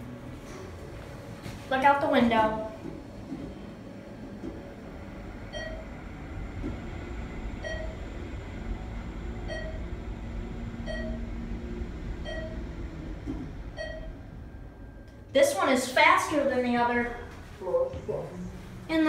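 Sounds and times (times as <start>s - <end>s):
elevator rumble and hum: 0.0s - 19.0s
elevator short beeps: 5.5s - 6.0s, 7.6s - 8.1s, 9.4s - 10.0s, 10.8s - 11.4s, 12.2s - 15.2s.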